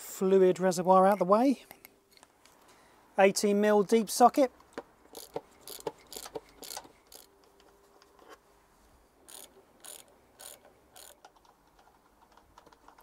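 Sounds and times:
ratchet wrench clicking: 0:05.1 - 0:07.3, 0:09.3 - 0:11.3.

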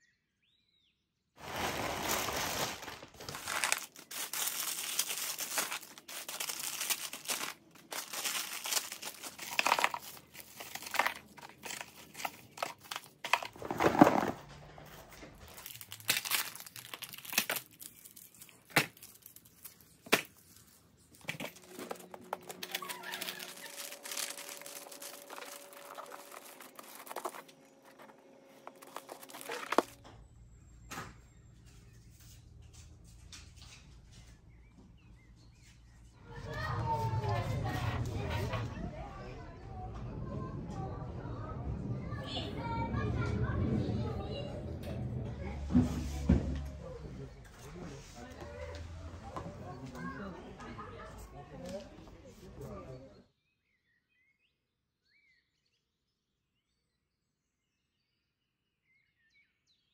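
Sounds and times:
plastic wrappers crinkling: 0:01.4 - 0:30.0.

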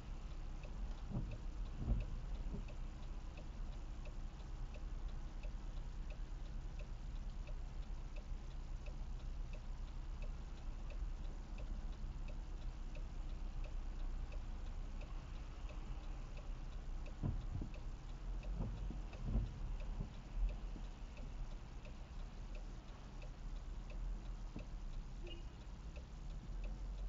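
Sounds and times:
low car hum: 0:00.0 - 0:27.0
turn signal ticking: 0:00.0 - 0:27.0
brief low thump: 0:17.2 - 0:17.8, 0:18.6 - 0:19.5.

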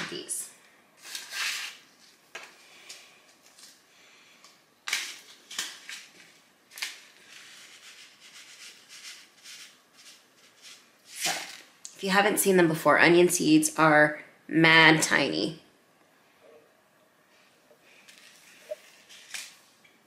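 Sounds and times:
paper packet crinkling: 0:18.0 - 0:19.8.

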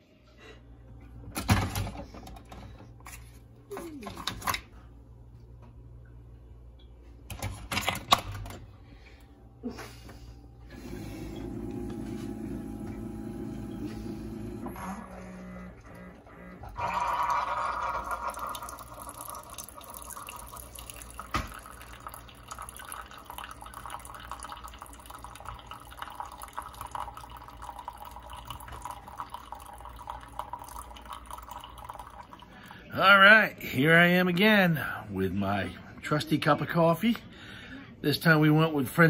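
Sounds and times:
low steady hum: 0:00.0 - 0:39.0
coffee trickling into cup: 0:15.7 - 0:32.9.

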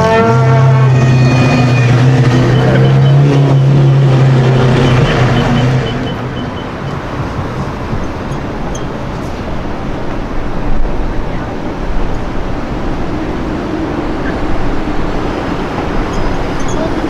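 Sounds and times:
street noise: 0:00.0 - 0:17.0
car engine low drone: 0:01.4 - 0:09.4.

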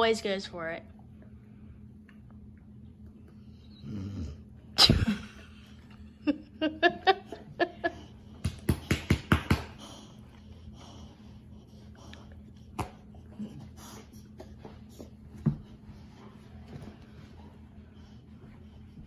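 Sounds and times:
dog breathing and grunting: 0:03.2 - 0:05.8, 0:07.4 - 0:19.0.

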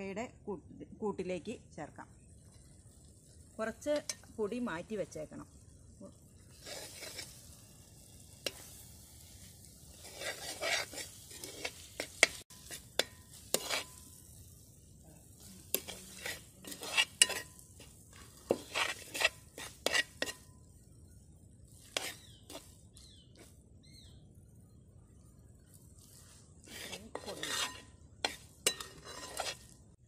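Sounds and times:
metal spoon scraping a pot: 0:06.5 - 0:07.6, 0:09.9 - 0:14.4, 0:15.6 - 0:20.6, 0:21.8 - 0:22.8, 0:26.2 - 0:29.8.

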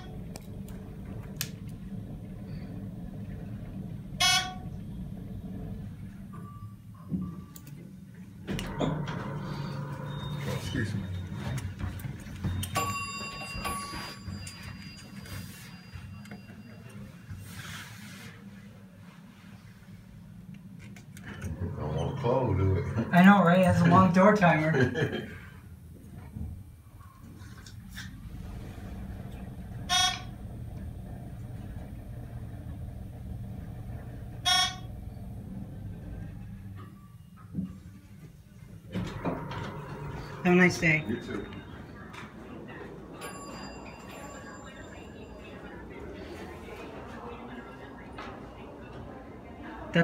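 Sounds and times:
elevator bell ding: 0:00.0 - 0:07.9, 0:08.5 - 0:17.4, 0:21.4 - 0:25.0, 0:28.2 - 0:37.9, 0:38.9 - 0:46.4
elevator hum: 0:00.0 - 0:17.4, 0:19.0 - 0:50.0
short electronic beeps: 0:34.5 - 0:34.9.

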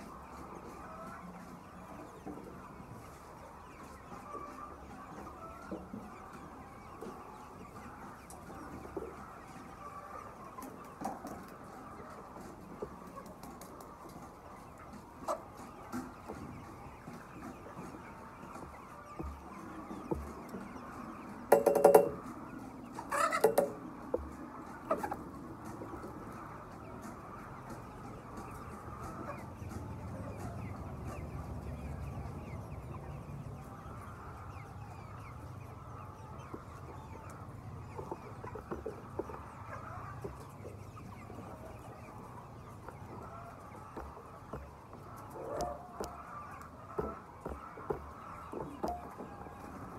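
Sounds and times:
chickens clucking: 0:00.0 - 0:49.9
chicken squawks: 0:22.9 - 0:23.8.

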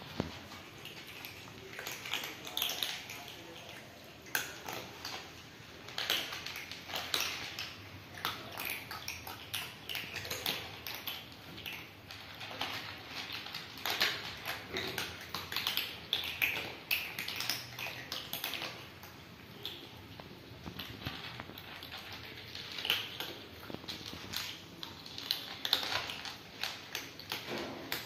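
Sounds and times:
cats crunching dry kibble: 0:00.0 - 0:28.0.

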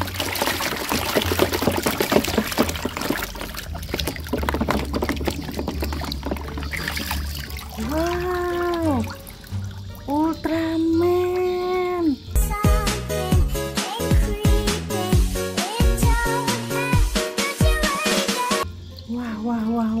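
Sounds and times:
water splashing in a plastic tub: 0:00.0 - 0:12.0.

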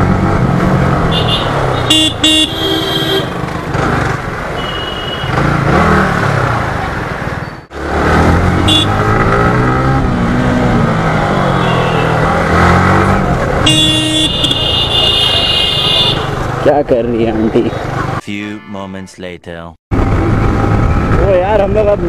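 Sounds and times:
motorcycle engine revving: 0:00.0 - 0:04.5, 0:05.1 - 0:16.7
wind and road noise: 0:00.0 - 0:18.2, 0:19.9 - 0:22.0
high tone: 0:18.2 - 0:19.8.

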